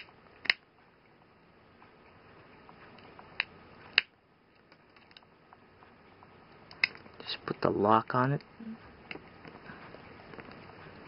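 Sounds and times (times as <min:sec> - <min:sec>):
sharp plastic clicks: 0:00.0 - 0:00.7, 0:06.5 - 0:07.2.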